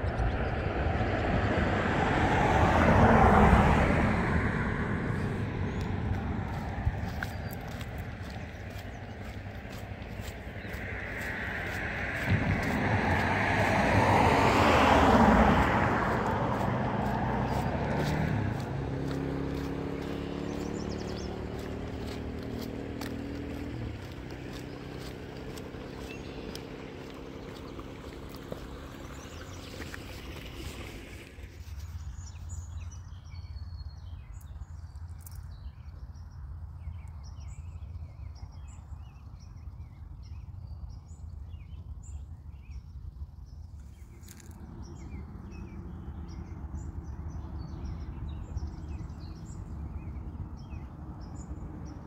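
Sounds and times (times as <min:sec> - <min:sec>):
vehicle passing by: 0:00.0 - 0:35.0, 0:43.8 - 0:52.0
steady low rumble: 0:04.1 - 0:34.0
high bird chirp: 0:17.4 - 0:28.2.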